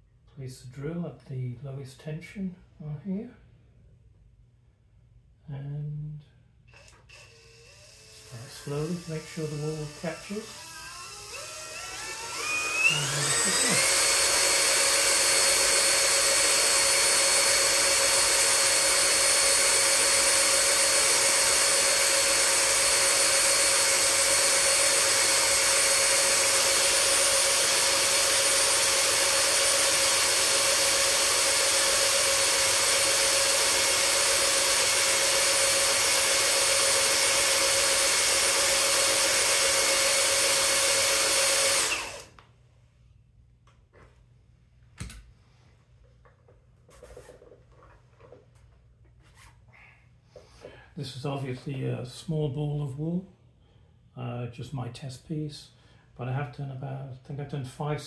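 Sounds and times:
drill motor whine: 0:06.7 - 0:42.3.

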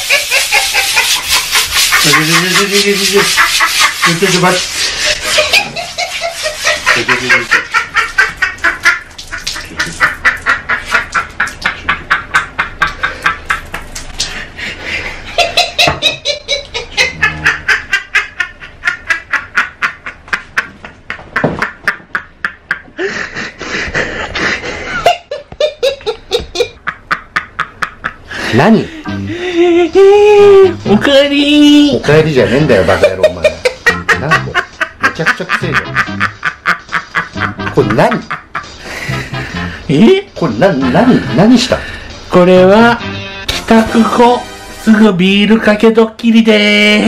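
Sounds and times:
man laughing hard: 0:00.0 - 0:13.7, 0:15.2 - 0:28.2, 0:29.0 - 0:30.8, 0:32.4 - 0:39.7.

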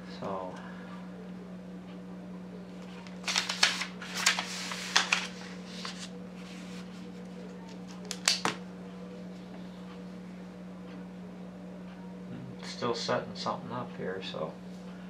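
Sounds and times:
steady low hum: 0:00.0 - 0:15.0
paper rustling and scraping: 0:02.9 - 0:07.2.

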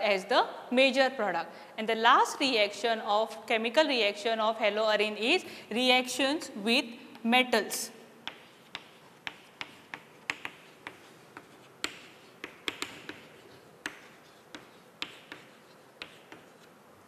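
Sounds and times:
chalk scratching strokes: 0:08.2 - 0:16.8
chalk tapping on a chalkboard: 0:08.2 - 0:16.8.

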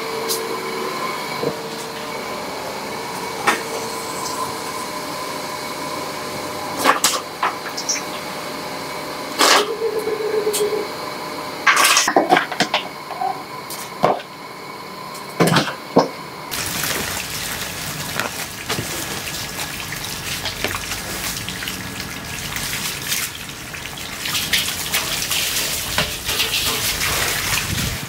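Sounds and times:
water running and splashing: 0:16.5 - 0:28.0.

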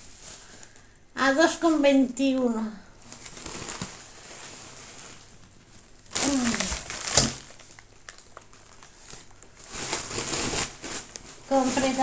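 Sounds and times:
plastic bag crinkling: 0:03.0 - 0:12.0.

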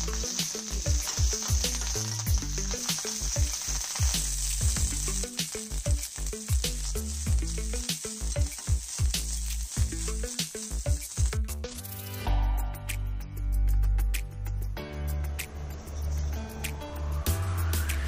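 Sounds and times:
steel spatula stirring wok: 0:00.0 - 0:11.4
spices sizzling in hot oil: 0:00.0 - 0:12.2
music with deep bass beat: 0:00.0 - 0:18.0.

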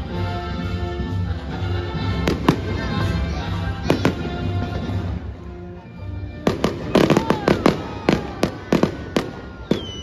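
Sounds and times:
music: 0:00.0 - 0:10.0
fireworks bangs: 0:06.4 - 0:10.0.

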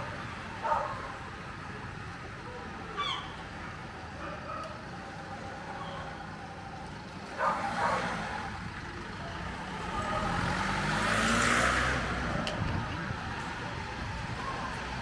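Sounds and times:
car driving past: 0:07.4 - 0:12.4.

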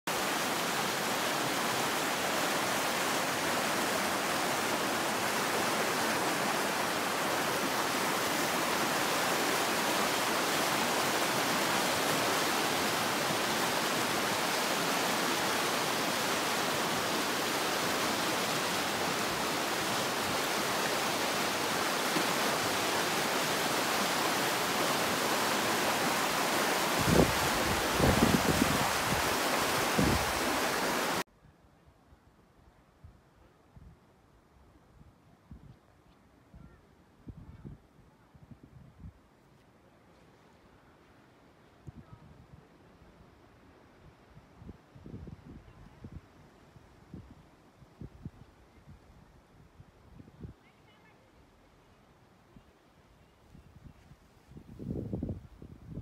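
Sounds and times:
river rushing through rapids: 0:00.1 - 0:31.2.

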